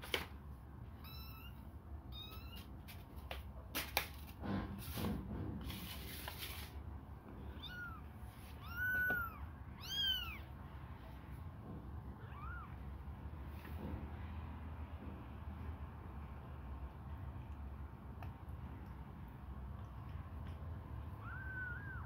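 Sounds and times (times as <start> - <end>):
rustle: 4.7 - 6.8
kittens mewing: 7.4 - 10.5, 12.1 - 12.9, 21.0 - 22.0.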